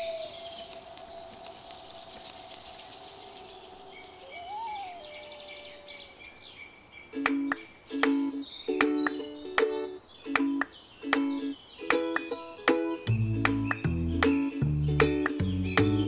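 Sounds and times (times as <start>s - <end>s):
small birds chirping: 0.0s - 16.0s
plucked music notes: 7.2s - 16.0s.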